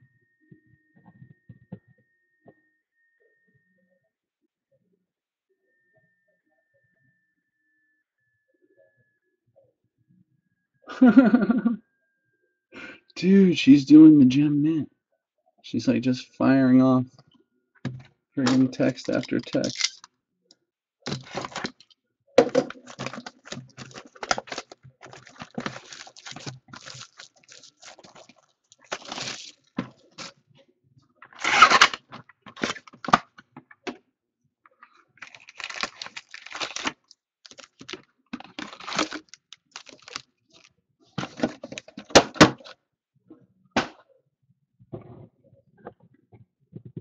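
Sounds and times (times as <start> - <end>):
shrink wrap crinkling: 18.5 - 20.1, 21.1 - 21.9, 22.7 - 30.3, 31.4 - 33.2, 35.2 - 42.1
wrap ripping: 24.2 - 29.6, 31.4 - 32.0, 35.2 - 38.0, 38.6 - 40.7.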